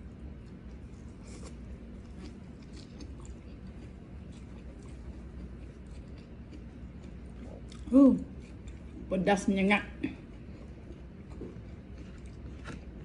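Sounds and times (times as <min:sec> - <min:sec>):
person chewing: 0:00.3 - 0:09.1, 0:10.2 - 0:13.0.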